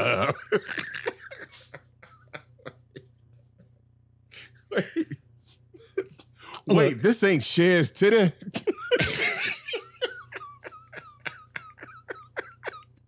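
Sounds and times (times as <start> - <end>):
men laughing: 0.0 - 3.0, 4.7 - 5.2, 5.8 - 7.6, 8.4 - 13.0.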